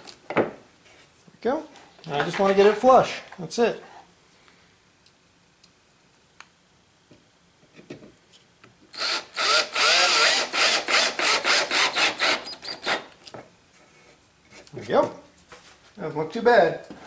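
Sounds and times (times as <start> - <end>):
cordless drill driving screw: 8.9 - 13.1.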